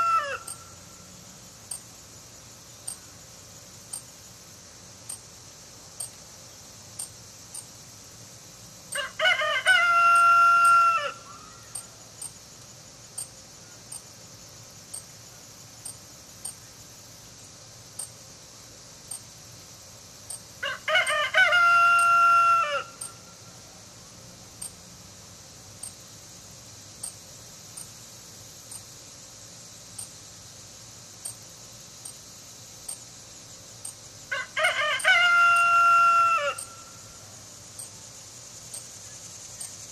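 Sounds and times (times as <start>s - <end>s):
rooster crowing: 0.0s - 0.8s, 8.9s - 11.9s, 20.6s - 23.2s, 34.3s - 37.0s
steady high hiss: 0.0s - 39.9s
faint high ticks: 0.4s - 0.7s, 1.7s - 1.9s, 2.8s - 3.1s, 3.9s - 4.1s, 5.0s - 5.3s, 6.0s - 6.3s, 7.0s - 7.8s, 10.1s - 10.8s, 11.7s - 14.1s, 14.8s - 15.2s, 15.8s - 16.6s, 17.9s - 18.2s, 19.0s - 19.3s, 20.2s - 20.5s, 21.9s - 22.2s, 22.9s - 23.2s, 24.6s - 24.8s, 25.8s - 26.0s, 27.0s - 28.0s, 28.7s - 28.9s, 29.9s - 30.2s, 31.2s - 32.2s, 32.8s - 33.1s, 33.8s - 34.1s, 35.0s - 35.8s, 36.6s - 36.8s, 37.8s - 38.0s, 38.7s - 39.9s.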